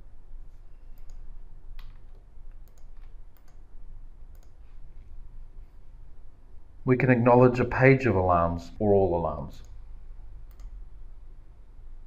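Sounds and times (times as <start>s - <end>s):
low background hum: 0.0s - 12.0s
computer mouse clicking: 0.9s - 3.7s, 4.3s - 4.6s, 10.4s - 10.8s.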